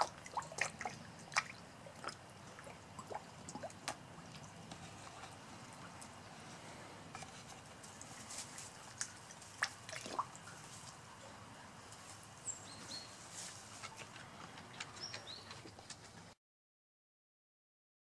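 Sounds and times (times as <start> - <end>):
sharp water smacks: 0.0 - 4.6, 8.8 - 11.0
fish feeding at pond surface: 0.0 - 16.3.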